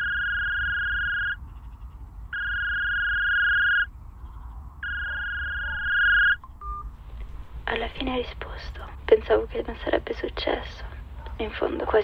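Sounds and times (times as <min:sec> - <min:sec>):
telephone ringback tone: 0:02.4 - 0:03.9, 0:04.8 - 0:06.9.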